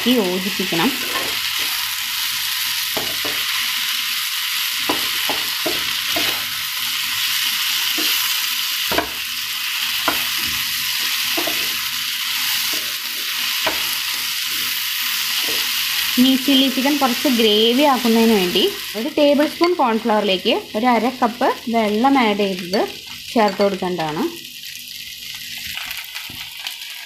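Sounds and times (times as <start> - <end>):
food sizzling in a pan: 0.0 - 27.0
spatula scraping and tapping pan: 4.8 - 6.5, 11.3 - 11.8, 12.6 - 14.7.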